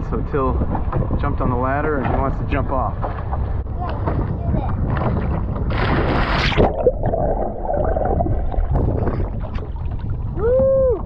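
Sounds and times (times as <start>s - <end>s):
water churning and gurgling: 0.0s - 11.0s
person splashing into water: 5.6s - 10.1s
person whooping: 10.4s - 11.0s.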